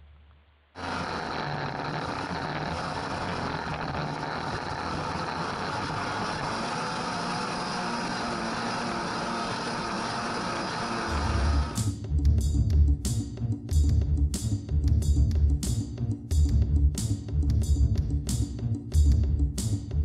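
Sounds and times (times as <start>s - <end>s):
snowmobile engine running: 0.8s - 11.9s.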